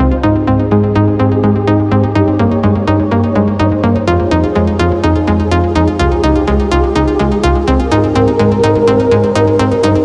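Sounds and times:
electronic music with steady beat: 0.0 - 10.0.

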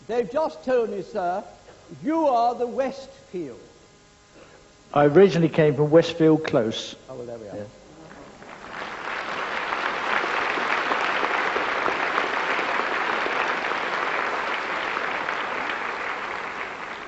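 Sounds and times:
audience applauding: 8.3 - 17.0.

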